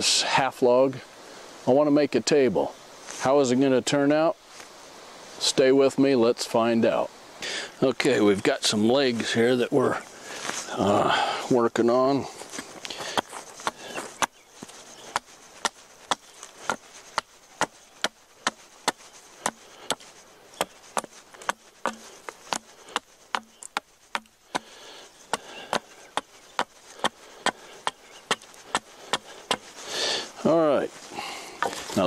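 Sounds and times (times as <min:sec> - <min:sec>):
hatchet chopping wood: 0:15.1 - 0:29.8.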